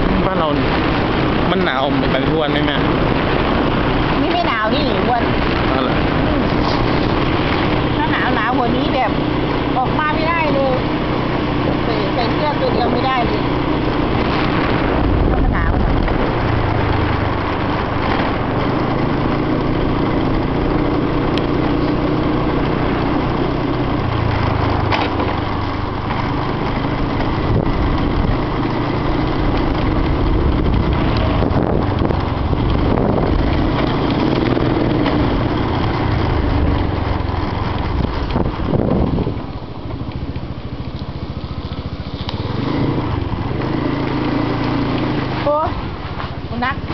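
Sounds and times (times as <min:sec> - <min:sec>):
small motorcycle engine running: 0:00.0 - 0:46.9.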